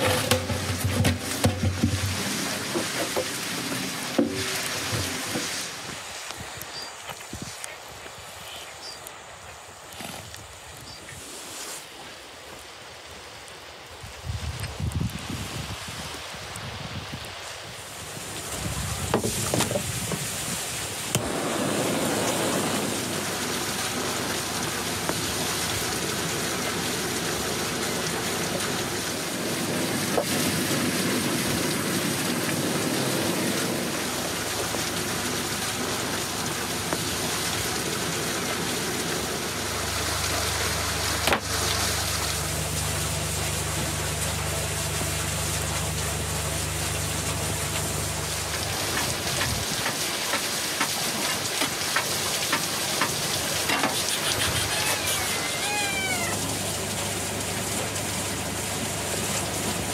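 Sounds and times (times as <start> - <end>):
rain pattering: 0.0 - 11.0, 11.6 - 59.9
low steady hum: 21.2 - 49.7.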